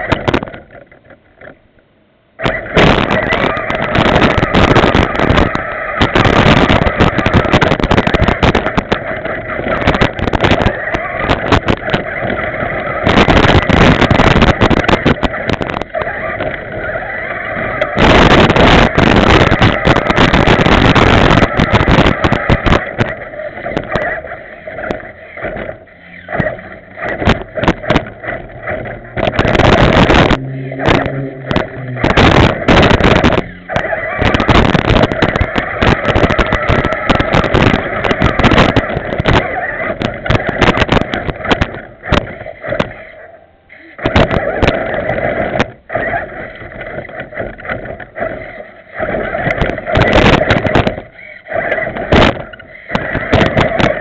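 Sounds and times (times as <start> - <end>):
toy truck motor whining: 2.4 - 54.0.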